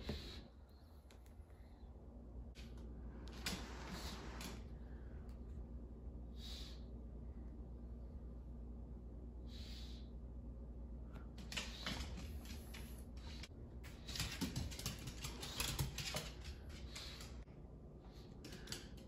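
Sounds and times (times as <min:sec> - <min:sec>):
dog claws clicking on floor: 0:11.4 - 0:17.4.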